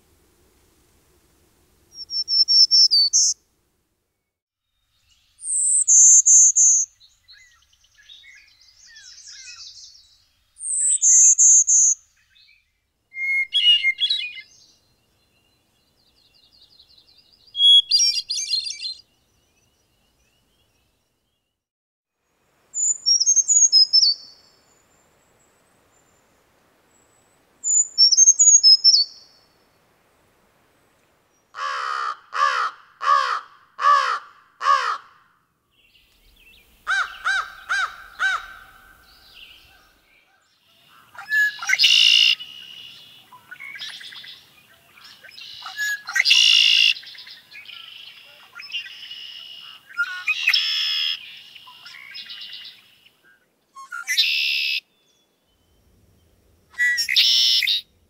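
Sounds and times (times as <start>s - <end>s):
warbler buzzy song: 1.8s - 3.4s, 4.1s - 21.6s, 22.3s - 29.9s, 35.7s - 58.0s
hermit thrush flute-like song: 4.8s - 21.6s, 35.9s - 58.0s.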